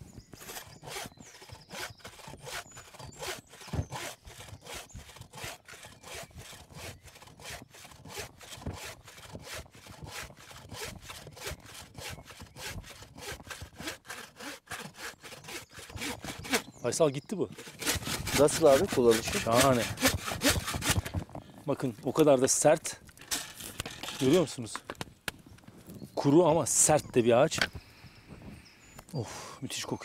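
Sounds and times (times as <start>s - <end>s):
bow saw cutting log: 0.4s - 16.8s, 17.5s - 21.2s.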